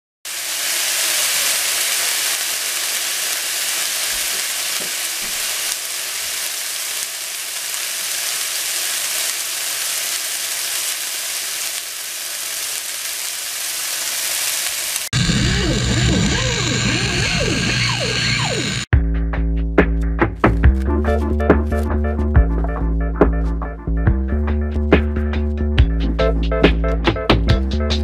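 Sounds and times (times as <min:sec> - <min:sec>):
beef sizzling in a pan: 0:00.3 - 0:18.8.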